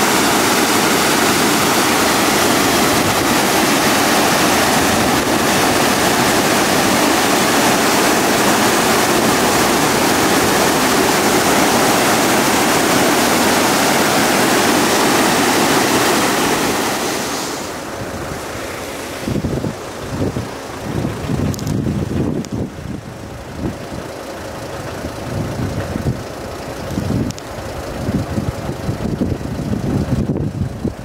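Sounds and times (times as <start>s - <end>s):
river rushing: 0.0s - 22.3s
floodwater roaring: 0.0s - 31.0s.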